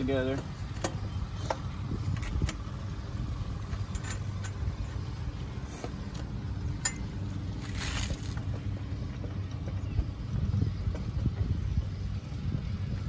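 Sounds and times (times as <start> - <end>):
steady low rumble: 0.0 - 13.0
metal bolts clicking and tapping: 3.6 - 4.9, 6.1 - 7.3.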